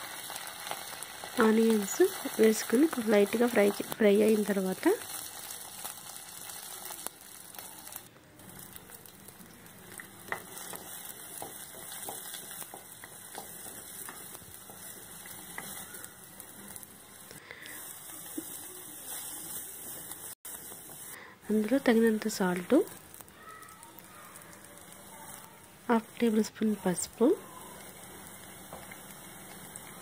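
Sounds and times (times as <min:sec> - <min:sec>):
vegetables sizzling in oil: 0:00.0 - 0:30.0
spatula scraping and tapping: 0:10.0 - 0:16.1.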